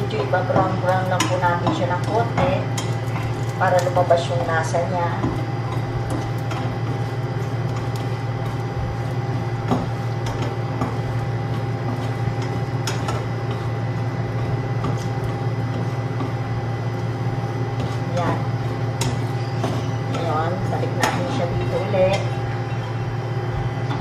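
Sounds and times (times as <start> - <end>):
turner scraping a pan: 0.0 - 16.5.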